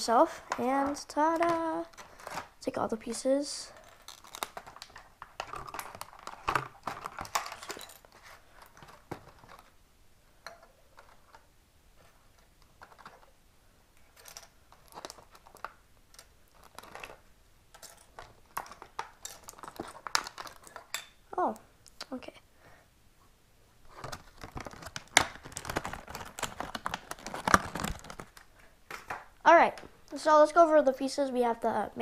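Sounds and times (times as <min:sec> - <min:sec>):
plastic tray crackling and clicking: 0:00.5 - 0:02.5, 0:03.8 - 0:07.9, 0:14.2 - 0:20.9, 0:23.9 - 0:29.2.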